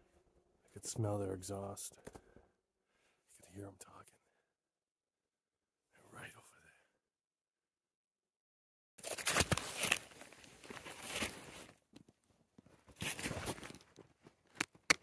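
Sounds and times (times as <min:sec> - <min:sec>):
binding straps rustling and scraping: 0:09.0 - 0:11.8.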